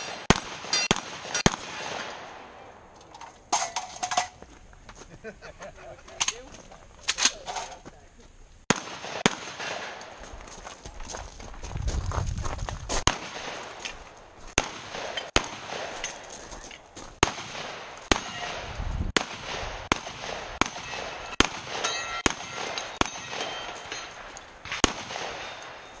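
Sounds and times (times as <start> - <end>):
steel targets ringing: 0.0 - 1.5, 20.6 - 24.4, 25.3 - 26.0
rifle gunshots: 0.0 - 2.6, 8.7 - 10.2, 13.1 - 13.8, 14.5 - 16.3, 17.2 - 26.0.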